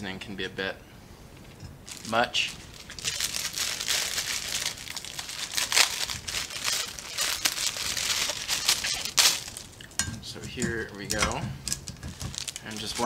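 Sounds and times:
plastic packet crinkling: 1.9 - 9.8, 12.0 - 13.0.

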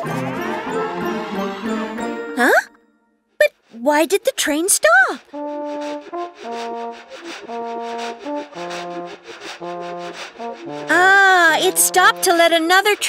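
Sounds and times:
brass-like melody: 0.0 - 2.4, 5.3 - 12.5
brushing shuffling beat: 3.4 - 13.0.

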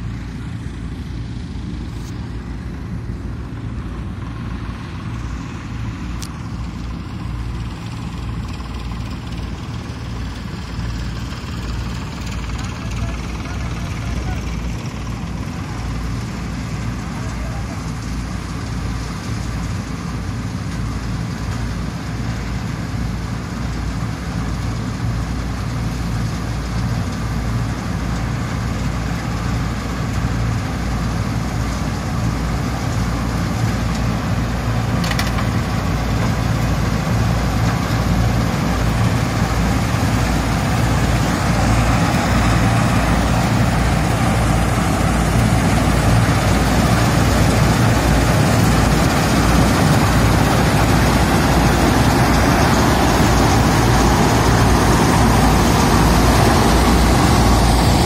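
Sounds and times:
combine harvester engine droning: 0.0 - 58.0.

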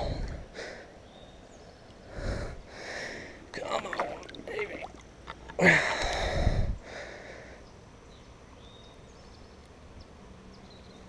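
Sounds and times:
faint steady hiss: 0.0 - 11.0
water splashing and sloshing: 3.5 - 6.2.

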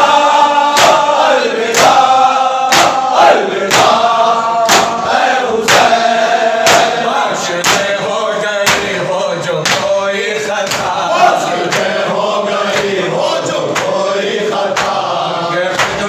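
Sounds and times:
men chanting in unison: 0.0 - 16.0
hand slaps on chest: 0.8 - 1.0, 1.7 - 2.0, 2.7 - 3.0, 3.7 - 3.9, 4.7 - 5.0, 6.6 - 6.9, 7.6 - 7.9, 8.6 - 8.9, 14.8 - 15.0, 15.7 - 16.0.

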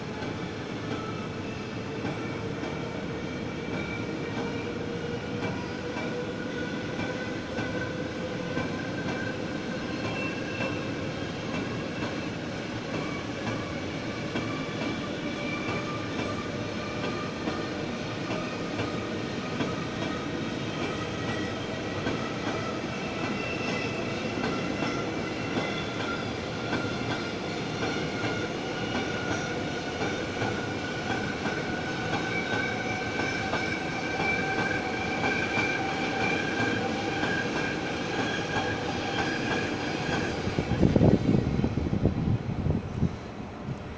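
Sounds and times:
train wheels rumbling on rail: 0.0 - 43.9.

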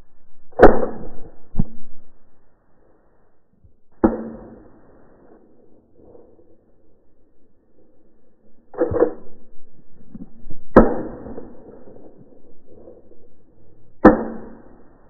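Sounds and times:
shotgun shots: 10.7 - 12.2, 14.0 - 15.0.

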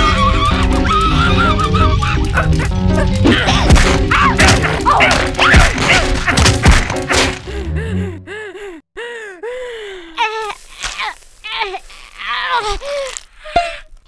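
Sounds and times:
background music: 0.0 - 8.8
cartoon thuds and crashes: 3.4 - 7.5.

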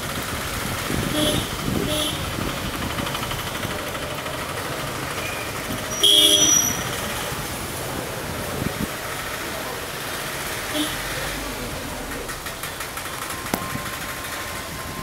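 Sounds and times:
hum of engines: 0.0 - 15.0
long car horn honk: 1.1 - 2.2, 5.9 - 6.8
car horn beeps: 5.2 - 6.9.

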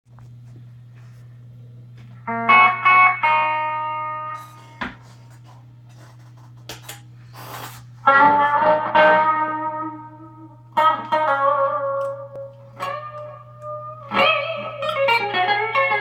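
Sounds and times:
steady low hum: 0.1 - 16.0
electric guitar chords: 1.0 - 5.1, 8.0 - 16.0
string and pick clicks: 11.9 - 15.0.

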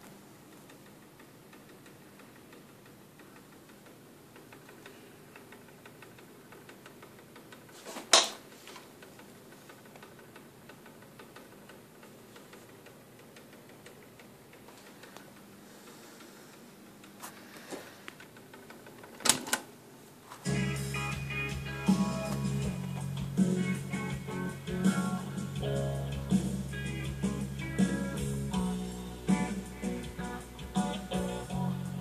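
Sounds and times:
cassette deck tape ticking: 0.0 - 7.8, 8.4 - 17.3.

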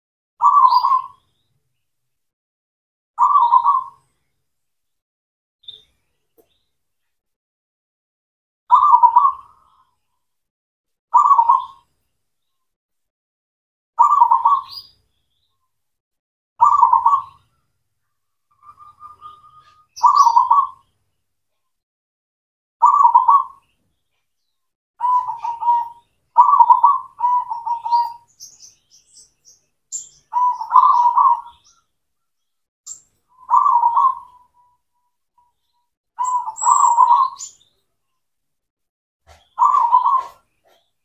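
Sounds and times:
dove cooing: 3.2 - 4.0, 8.7 - 9.6, 11.2 - 11.8, 14.0 - 14.8, 16.6 - 17.4, 18.6 - 20.8, 22.8 - 23.6, 25.0 - 28.3, 30.3 - 31.6, 33.4 - 34.8, 36.2 - 37.5, 39.3 - 40.9
faint high chirps: 16.6 - 21.8, 22.8 - 38.3.

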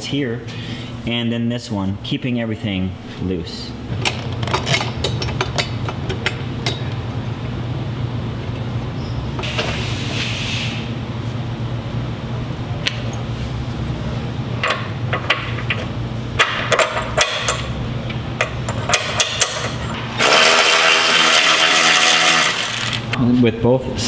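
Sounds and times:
steady low hum: 0.0 - 24.0
power tool starting: 20.1 - 23.2.

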